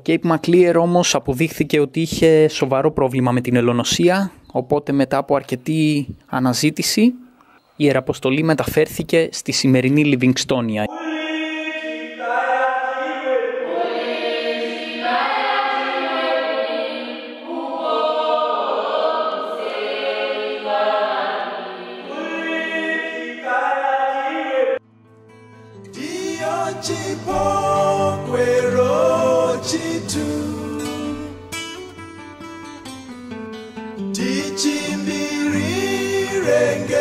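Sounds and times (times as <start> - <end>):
choir singing in harmony: 10.9 - 24.8, 25.9 - 31.5, 34.1 - 37.0.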